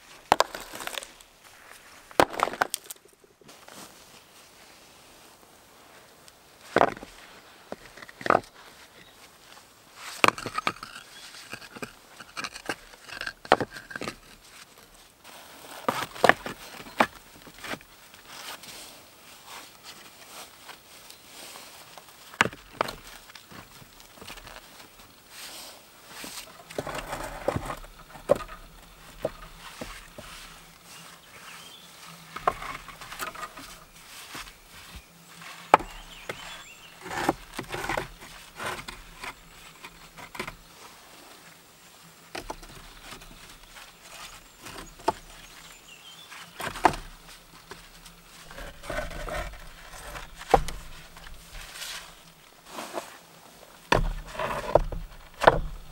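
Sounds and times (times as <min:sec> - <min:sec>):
shuffling and rustling: 0:00.0 - 0:10.2, 0:13.9 - 0:55.9
stones knocking and scraping: 0:00.2 - 0:03.3, 0:06.6 - 0:09.2, 0:10.1 - 0:14.8, 0:15.6 - 0:18.3, 0:22.2 - 0:25.1, 0:26.2 - 0:30.6, 0:32.3 - 0:40.6, 0:46.5 - 0:53.1, 0:53.9 - 0:55.9.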